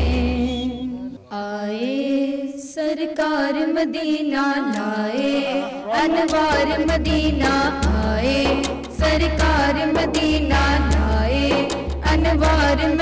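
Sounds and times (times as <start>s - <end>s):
women singing a hymn: 0.0s - 13.0s
low backing beat: 5.3s - 13.0s.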